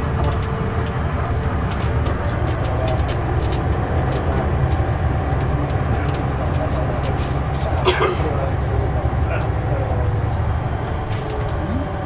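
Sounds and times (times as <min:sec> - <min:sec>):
coach engine drone: 0:00.0 - 0:12.0
road noise: 0:00.0 - 0:12.0
light clicks and rattles: 0:00.1 - 0:08.0.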